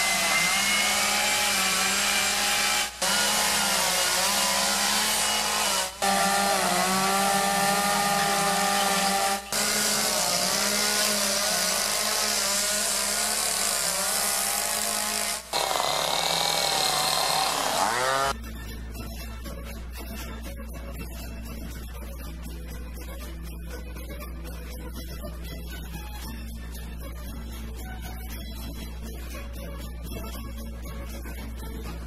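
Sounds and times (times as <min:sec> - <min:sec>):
chainsaws cutting wood: 0:00.0 - 0:18.4.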